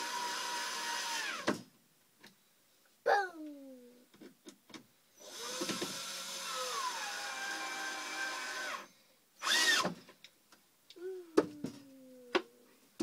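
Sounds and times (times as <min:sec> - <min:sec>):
cordless drill driving screw: 0:05.2 - 0:09.9.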